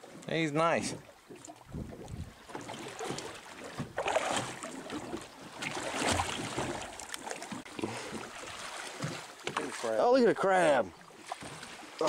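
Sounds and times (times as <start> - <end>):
seawater splashing against boat: 0.0 - 12.0
wind buffeting microphone: 1.6 - 2.5.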